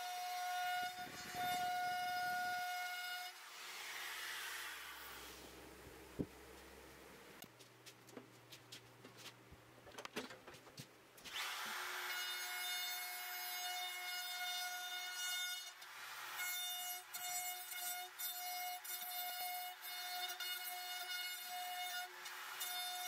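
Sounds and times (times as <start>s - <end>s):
router whining cutting wood: 0.0s - 5.7s, 11.3s - 15.0s.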